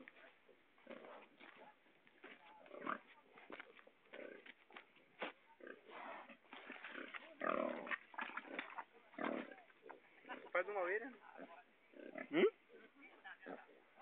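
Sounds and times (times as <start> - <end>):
pigs grunting: 5.6 - 9.7, 11.3 - 13.8.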